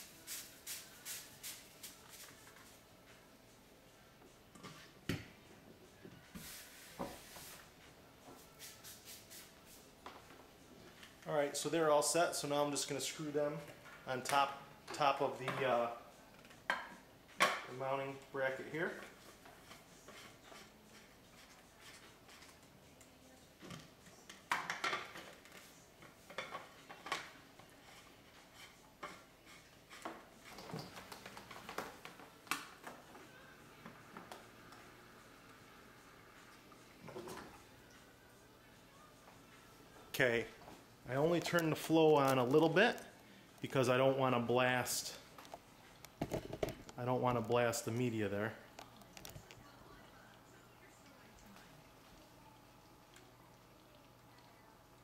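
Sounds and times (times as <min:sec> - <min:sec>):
soft hiss: 0:00.0 - 0:04.1.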